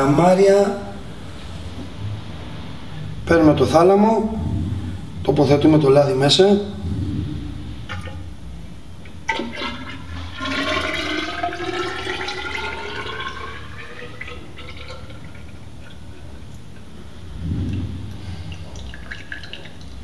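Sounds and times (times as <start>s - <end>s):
oil pouring into a tube: 9.3s - 16.8s, 18.1s - 20.0s.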